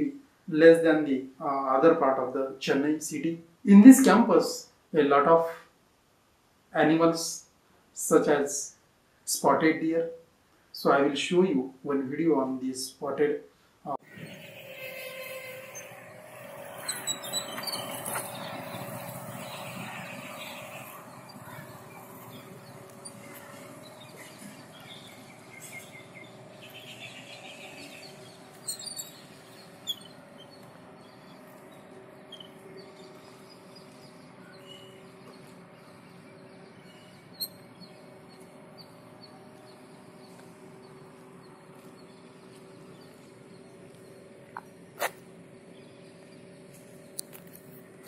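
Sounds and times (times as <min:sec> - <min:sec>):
birds chirping: 0:14.0 - 0:48.0.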